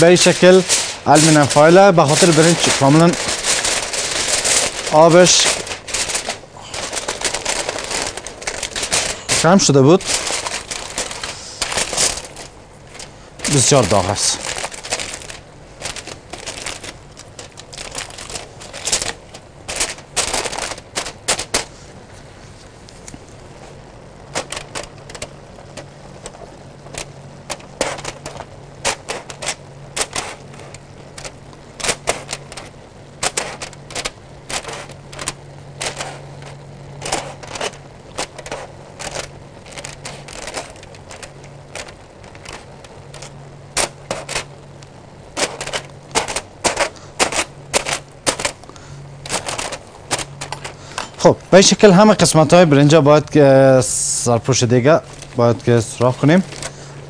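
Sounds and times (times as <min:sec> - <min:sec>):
utensil piercing foil: 0:00.0 - 0:22.0, 0:23.7 - 0:57.0
aluminium foil crinkling: 0:00.0 - 0:57.0.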